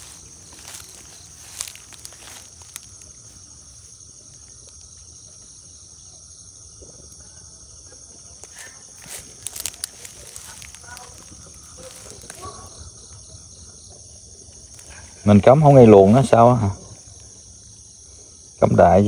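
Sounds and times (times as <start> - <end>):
dry leaves rustling and crackling: 0.0 - 5.2, 8.3 - 13.0, 14.4 - 17.3
insects trilling: 0.0 - 19.0.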